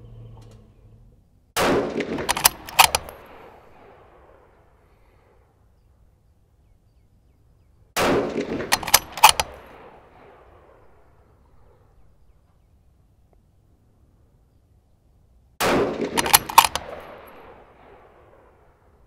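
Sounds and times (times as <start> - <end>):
gunshot echo: 1.6 - 4.7, 8.0 - 11.8, 15.6 - 18.8
rifle shot: 1.6 - 4.7, 8.0 - 11.8, 15.6 - 18.8
sharp cracks: 1.6 - 4.8, 8.0 - 11.3, 15.6 - 18.9.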